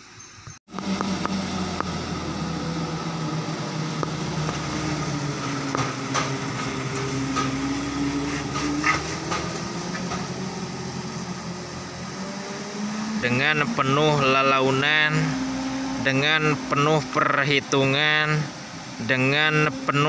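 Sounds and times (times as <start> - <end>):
truck diesel engine drone: 0.7 - 20.0
sharp knocks and rattles: 4.0 - 10.5.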